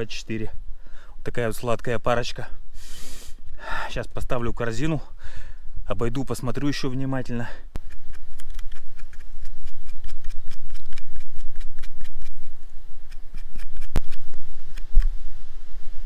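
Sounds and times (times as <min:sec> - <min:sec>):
footsteps snapping twigs: 0:07.8 - 0:15.1.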